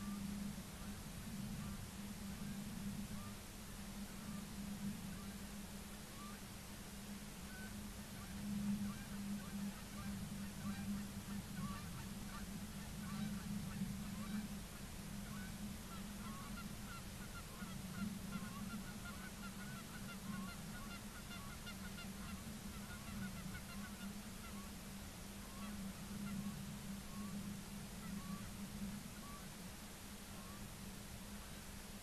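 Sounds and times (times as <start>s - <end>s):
steady low hum: 0.0s - 32.0s
flock of birds calling: 7.5s - 24.8s, 25.4s - 29.6s.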